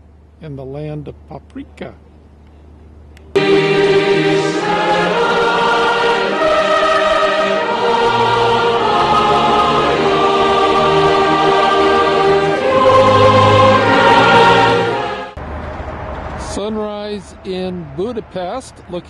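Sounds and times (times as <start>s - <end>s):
choir singing held chords: 3.3s - 16.1s.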